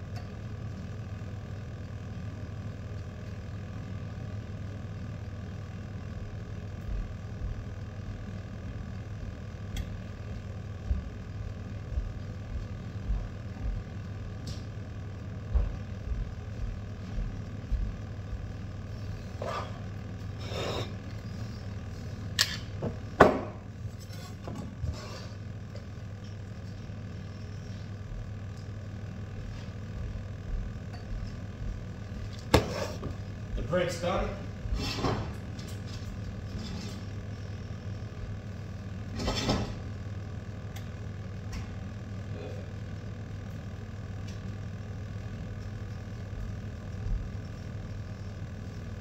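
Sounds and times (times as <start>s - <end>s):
kitchen appliance humming: 0.0s - 49.0s.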